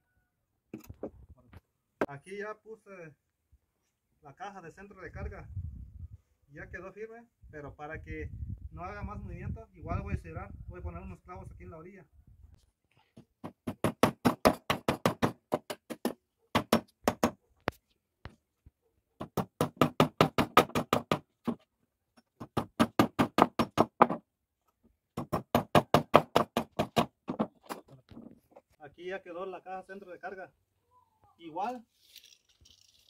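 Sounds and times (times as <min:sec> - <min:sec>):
hammer driving nails into wood: 0:13.4 - 0:17.4, 0:19.2 - 0:21.6, 0:22.4 - 0:24.2, 0:25.2 - 0:27.8.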